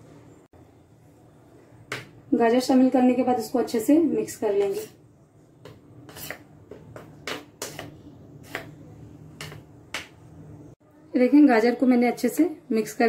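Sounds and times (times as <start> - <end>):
spoon stirring thick batter: 4.5 - 10.2.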